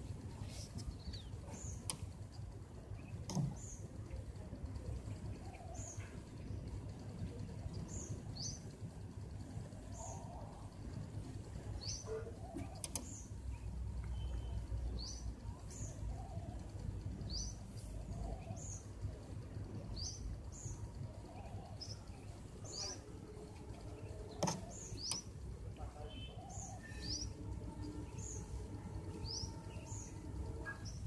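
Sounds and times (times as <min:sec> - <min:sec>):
low background hum: 0:00.0 - 0:31.0
bird chirping: 0:19.6 - 0:31.0.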